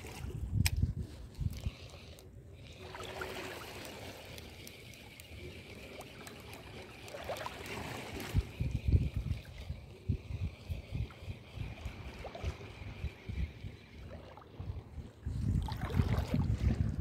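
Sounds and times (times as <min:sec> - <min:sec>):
small waves lapping on rocks: 0:02.0 - 0:09.6.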